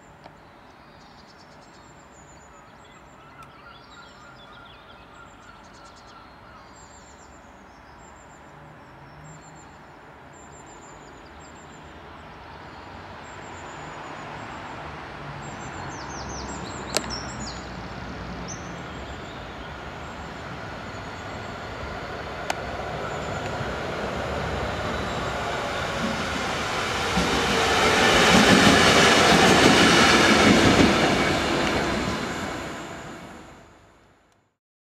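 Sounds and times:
diesel locomotive engine passing: 0:14.0 - 0:34.0
wheel noise on rails: 0:18.8 - 0:33.6.

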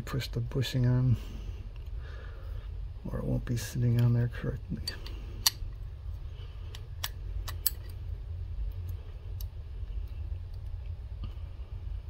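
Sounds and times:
steady low hum: 0:00.0 - 0:12.0
small metal clicks: 0:06.7 - 0:08.0.

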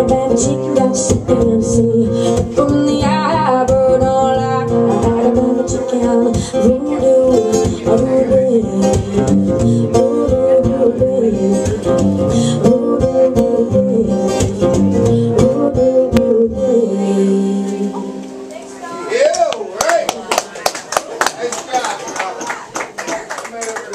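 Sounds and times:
woman singing: 0:00.0 - 0:18.4
acoustic guitar strumming: 0:00.0 - 0:19.1.

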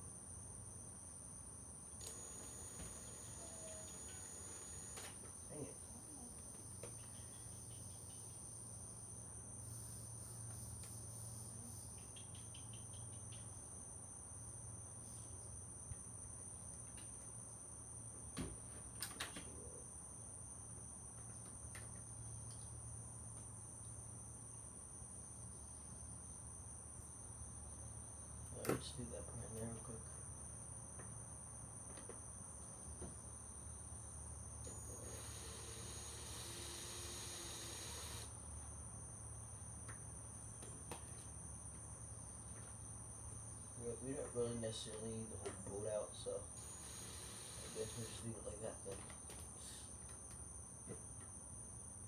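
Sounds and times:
crickets chirring: 0:00.0 - 0:52.0
cordless drill whirring: 0:02.0 - 0:05.1, 0:34.7 - 0:38.3, 0:46.6 - 0:48.2.

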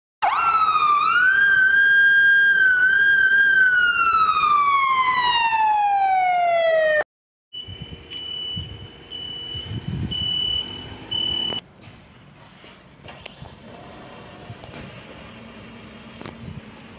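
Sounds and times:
siren winding up and down: 0:00.2 - 0:11.6
high steady beeping tone: 0:07.5 - 0:11.6.

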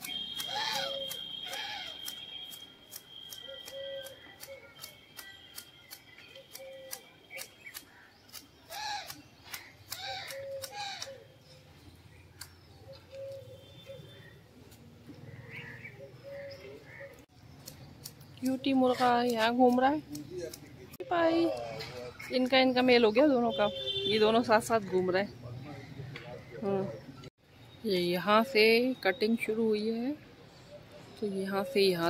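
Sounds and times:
hedge shears snipping: 0:00.0 - 0:11.2, 0:12.4 - 0:13.4, 0:17.5 - 0:22.5
birds calling: 0:00.0 - 0:32.0.

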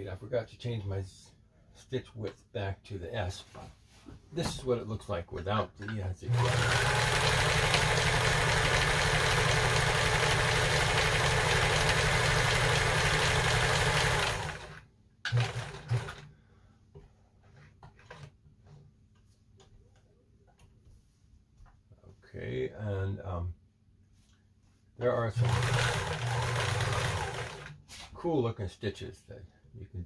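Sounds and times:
sewing machine stitching: 0:06.3 - 0:16.3, 0:25.3 - 0:28.0.

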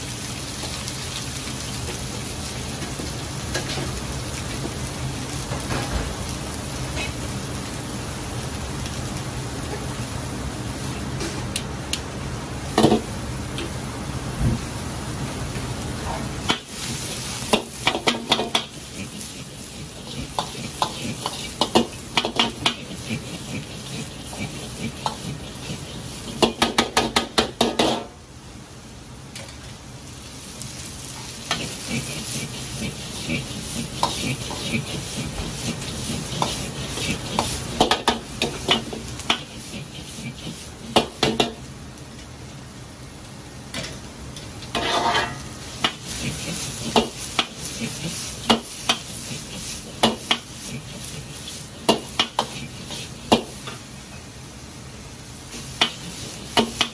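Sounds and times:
gas burner running: 0:00.0 - 0:56.9
onions sizzling in a wok: 0:00.0 - 0:56.9
metal ladle scraping a wok: 0:44.8 - 0:45.4.

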